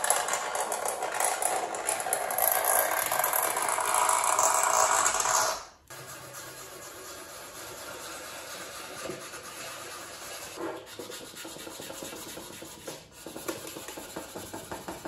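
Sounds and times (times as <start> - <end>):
sanding stick rasping plastic: 5.9 - 15.0.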